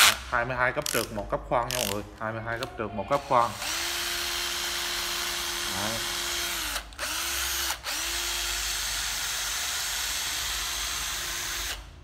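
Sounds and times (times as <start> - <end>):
cordless drill whirring: 3.1 - 11.9.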